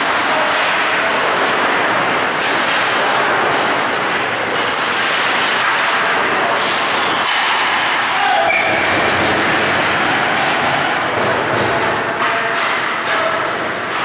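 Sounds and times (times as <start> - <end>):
noisy rush of ice rink: 0.0 - 14.0
skates scraping ice: 0.0 - 14.0.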